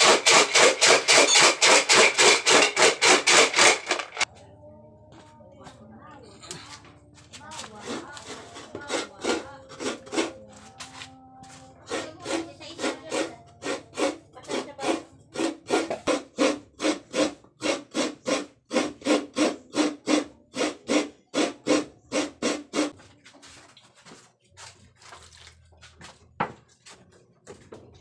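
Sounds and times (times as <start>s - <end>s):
food being grated by hand: 0.0s - 4.3s, 7.4s - 11.0s, 11.8s - 23.0s.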